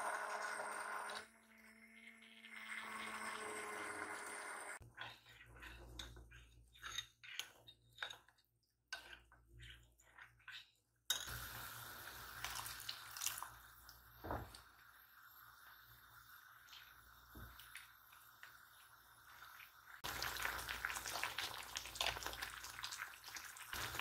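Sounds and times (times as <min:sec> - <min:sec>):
immersion blender: 0:00.0 - 0:04.8
spatula stirring sauce in pot: 0:04.8 - 0:12.7, 0:15.0 - 0:24.0.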